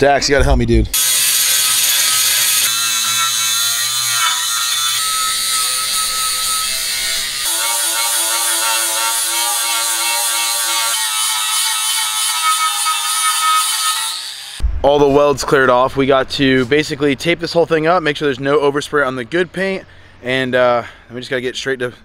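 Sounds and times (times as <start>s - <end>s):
angle grinder grinding metal: 1.0s - 14.6s.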